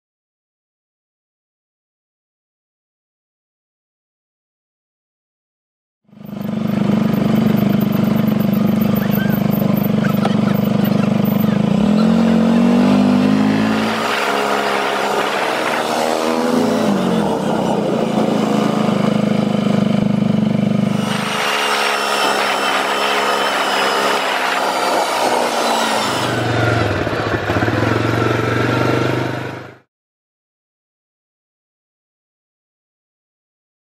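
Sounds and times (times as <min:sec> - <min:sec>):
atv engine running: 0:06.1 - 0:29.8.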